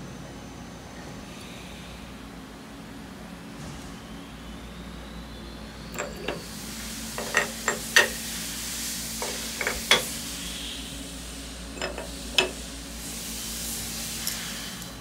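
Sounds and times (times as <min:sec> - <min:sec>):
metal clinks and taps: 0:06.0 - 0:06.5, 0:07.2 - 0:08.2, 0:09.2 - 0:10.2, 0:11.8 - 0:12.6
steady hiss: 0:06.0 - 0:15.0.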